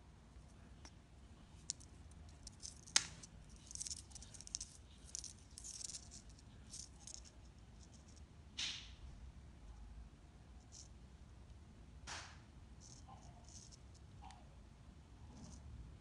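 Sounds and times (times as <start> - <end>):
fishing line rustling: 1.6 - 7.4.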